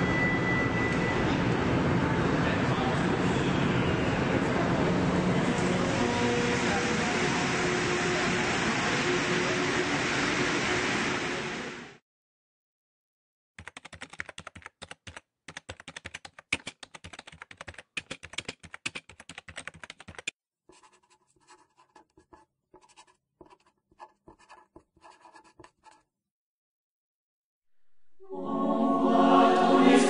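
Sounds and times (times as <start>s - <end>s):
typing on a keyboard: 13.6s - 20.3s
pen writing on paper: 17.6s - 26.1s.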